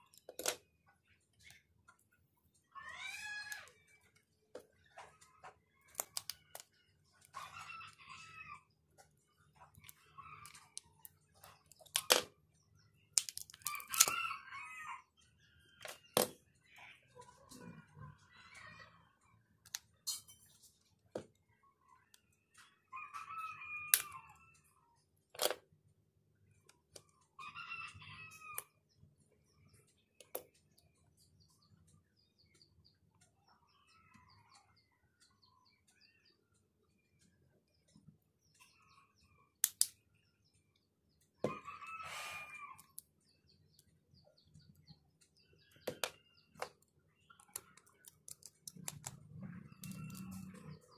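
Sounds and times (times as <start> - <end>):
chickens calling: 41.4 - 43.3
rooster crowing: 41.5 - 42.8.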